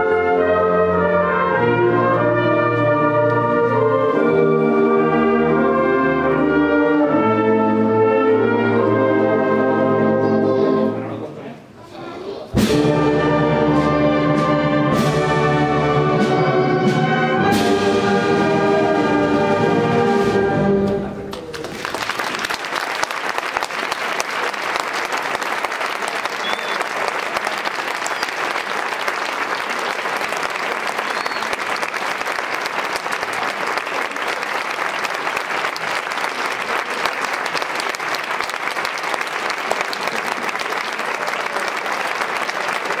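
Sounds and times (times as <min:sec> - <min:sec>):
audience applauding: 0:21.0 - 0:43.0.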